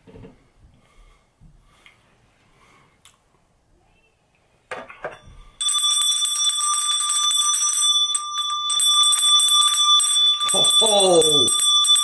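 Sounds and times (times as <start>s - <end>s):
handbell ringing rapidly: 5.6s - 12.0s.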